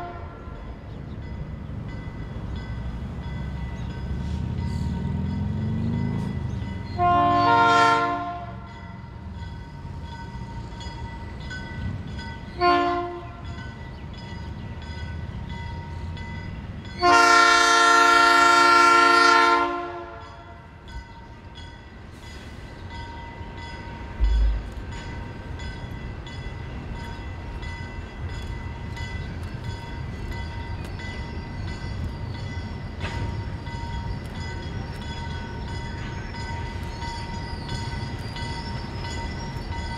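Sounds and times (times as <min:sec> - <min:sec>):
locomotive air horn blasts: 0:00.0 - 0:00.6, 0:06.9 - 0:08.8, 0:12.5 - 0:13.6, 0:17.0 - 0:20.6
crossing bells ringing: 0:00.0 - 0:39.9
train rumble: 0:00.0 - 0:39.9.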